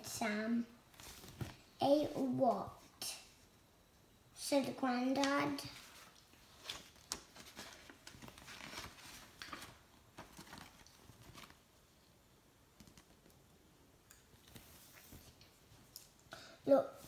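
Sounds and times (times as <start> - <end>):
paper pages rustling and turning: 0.9 - 1.6, 5.5 - 11.6, 14.4 - 15.5.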